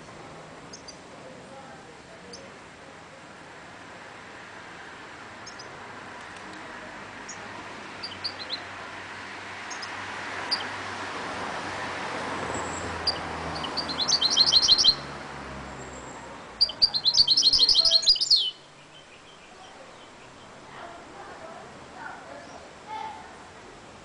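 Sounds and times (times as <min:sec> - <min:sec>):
steady background noise: 0:00.0 - 0:24.0
caged finch singing: 0:05.4 - 0:05.7, 0:07.2 - 0:10.9, 0:12.5 - 0:20.6.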